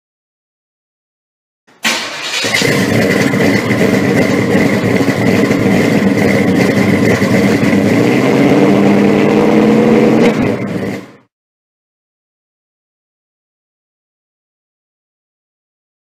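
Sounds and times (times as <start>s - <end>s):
car engine running loudly: 1.8s - 11.3s.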